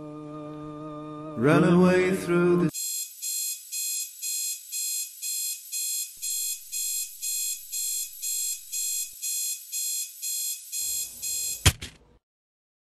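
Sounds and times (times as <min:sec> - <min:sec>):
alarm clock beeping: 0:02.8 - 0:11.7.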